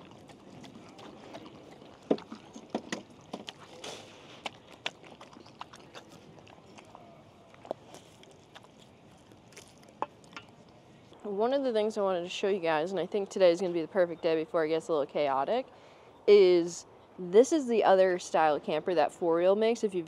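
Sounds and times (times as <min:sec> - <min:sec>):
dog licking and chewing: 0:00.0 - 0:10.8.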